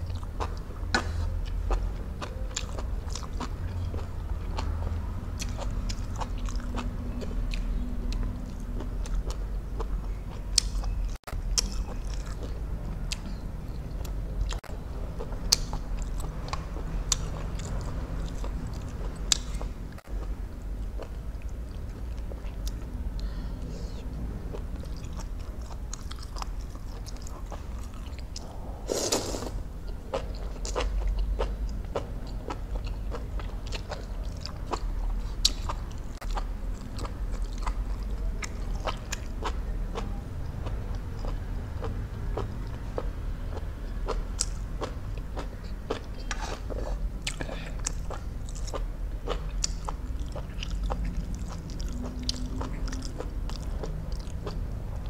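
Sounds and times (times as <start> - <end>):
short loud slurp: 28.8 - 29.6.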